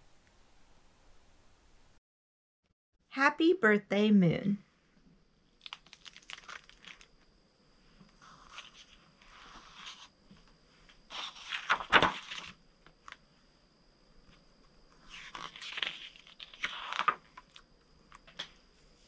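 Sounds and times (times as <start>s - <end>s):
book pages turning: 5.6s - 7.1s, 8.2s - 10.1s, 11.1s - 13.2s, 15.1s - 17.6s.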